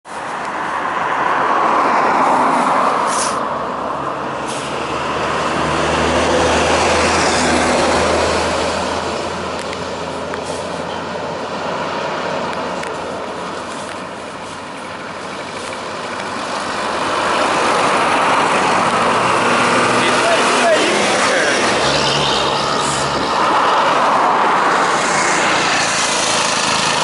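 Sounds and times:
highway traffic passing: 0.0 - 27.0
diesel engine drone: 0.1 - 27.0
short hisses: 3.1 - 3.4.

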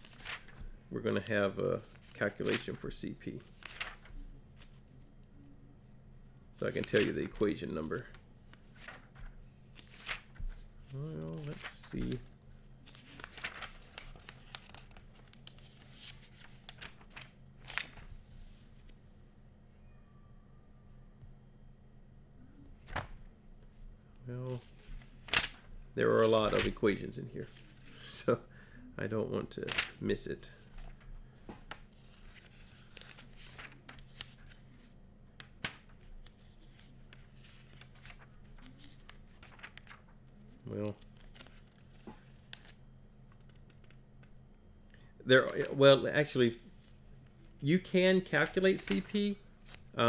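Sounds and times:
pages rustling as turned: 0.0 - 5.0, 6.6 - 19.0, 22.8 - 23.2, 24.5 - 26.8, 29.7 - 30.0, 30.6 - 44.3, 48.4 - 50.0
faint low hum: 0.0 - 50.0.

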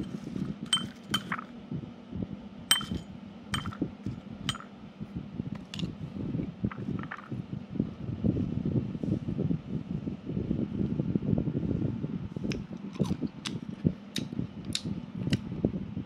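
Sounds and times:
knife clinking against ceramic bowl: 0.7 - 1.5, 2.7 - 3.0, 3.6 - 3.8, 4.5 - 4.7.

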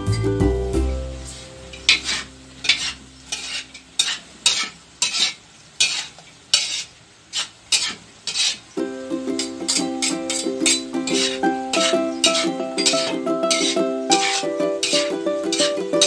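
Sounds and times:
low sizzle: 0.0 - 16.0
spatula scraping a wok: 1.2 - 8.7, 10.7 - 15.8.

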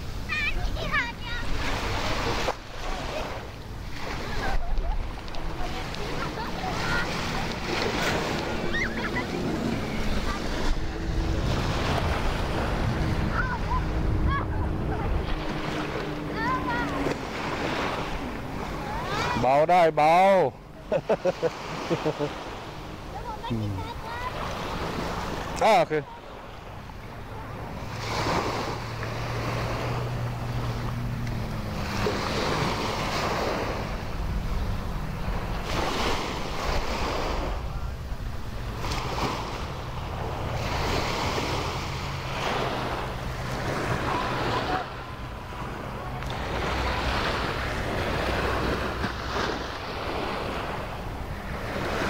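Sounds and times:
wind buffeting microphone: 0.0 - 19.4
low steady engine hum: 0.0 - 52.0
sea waves washing onto beach: 0.0 - 52.0.

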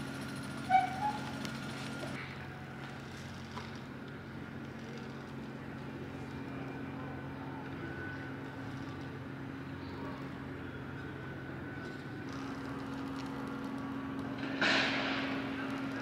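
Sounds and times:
low machine hum: 0.0 - 16.0.

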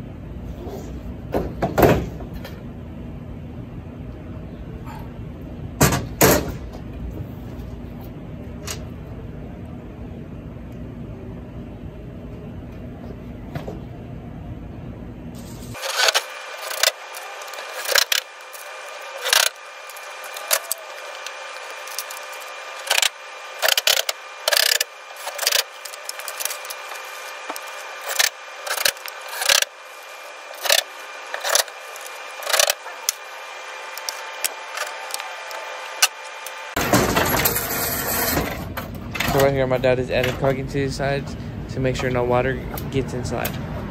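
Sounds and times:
sharp clattering bursts: 15.7 - 38.6.

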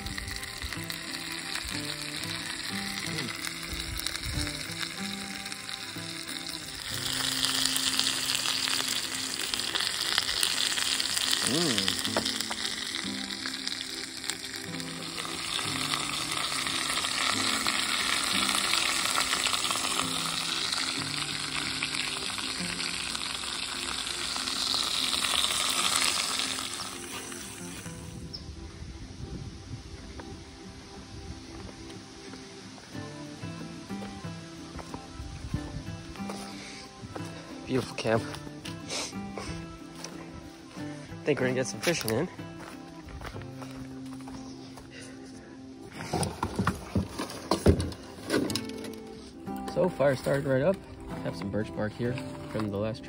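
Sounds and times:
steak sizzling in pan: 0.0 - 28.4
soft background music: 0.0 - 53.0.

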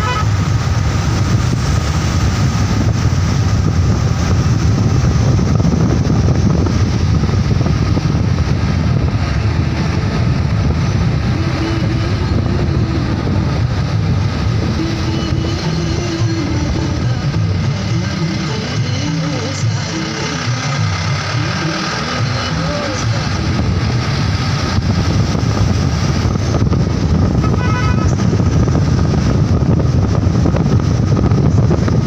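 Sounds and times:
vehicle engine drone: 0.0 - 32.0
wind buffeting microphone: 0.0 - 32.0.

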